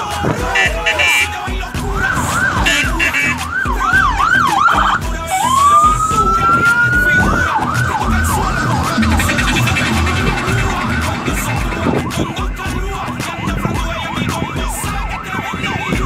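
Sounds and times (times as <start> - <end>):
electronic siren: 1.9 - 12.6.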